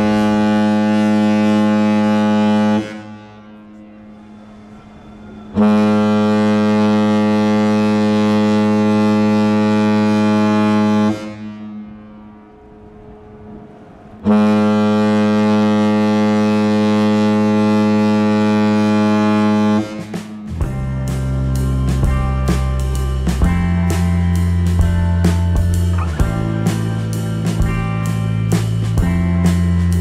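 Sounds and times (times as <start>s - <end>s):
deep ship horn blasts: 0.0s - 30.0s.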